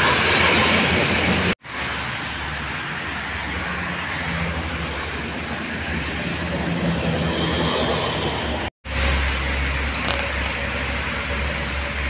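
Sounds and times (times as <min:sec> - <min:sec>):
bus and truck engines: 0:00.0 - 0:12.0
tyre and road noise: 0:00.0 - 0:12.0.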